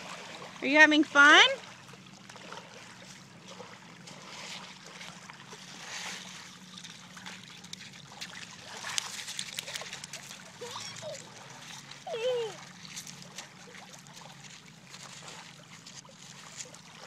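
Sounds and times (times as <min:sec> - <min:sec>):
shallow water splashing: 0:00.0 - 0:17.0
small splashes and clicks: 0:01.6 - 0:17.0.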